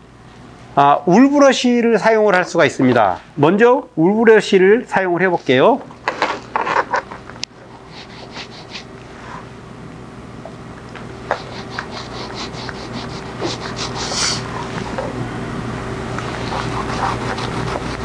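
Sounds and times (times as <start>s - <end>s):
brush rubbing on leather: 11.3s - 14.4s, 16.3s - 18.0s.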